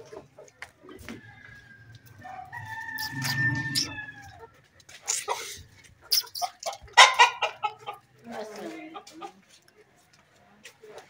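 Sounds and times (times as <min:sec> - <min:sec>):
chickens squawking: 0:00.0 - 0:08.1
rooster crowing: 0:01.0 - 0:04.5.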